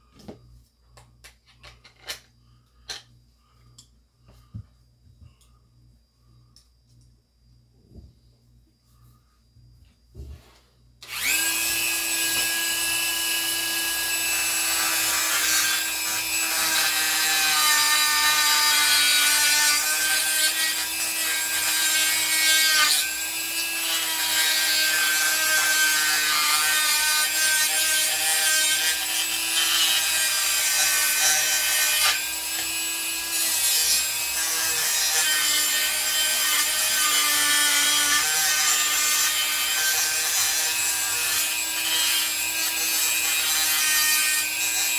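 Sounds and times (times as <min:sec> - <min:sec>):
rotary tool grinding: 0:11.0 - 0:44.9.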